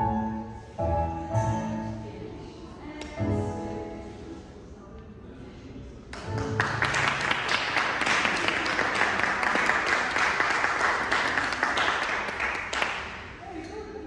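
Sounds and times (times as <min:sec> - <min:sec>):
audience applauding: 0:06.2 - 0:13.4.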